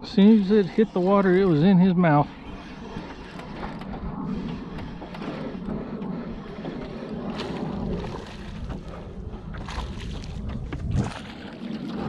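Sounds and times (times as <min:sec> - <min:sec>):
lapping water: 0:00.0 - 0:12.0
wind buffeting microphone: 0:00.0 - 0:12.0.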